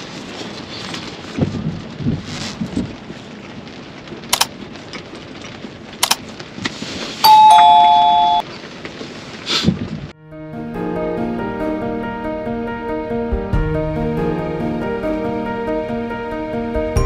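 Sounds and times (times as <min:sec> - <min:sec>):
rain on a car: 0:00.0 - 0:10.2
two-note doorbell chime: 0:07.3 - 0:08.4.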